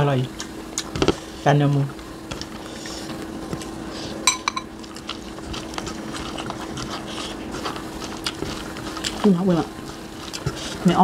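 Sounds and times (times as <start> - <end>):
utensil clinking on ceramic plate: 4.3 - 4.7
chewing and lip smacking: 4.8 - 9.3, 9.9 - 10.6.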